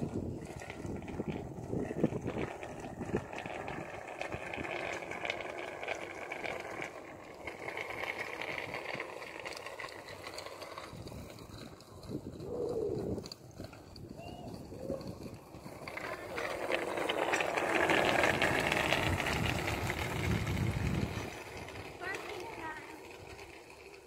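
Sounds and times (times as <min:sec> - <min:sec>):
wind on microphone: 0:00.0 - 0:04.7, 0:10.9 - 0:16.5, 0:17.8 - 0:21.6.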